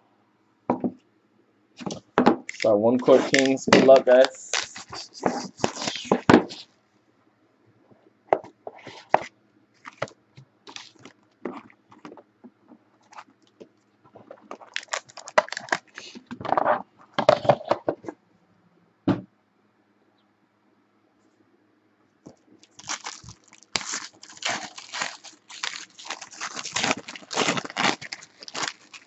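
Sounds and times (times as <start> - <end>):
plastic shrink wrap tearing and crinkling: 2.5 - 6.6, 10.7 - 11.2, 14.2 - 16.2, 22.6 - 29.0.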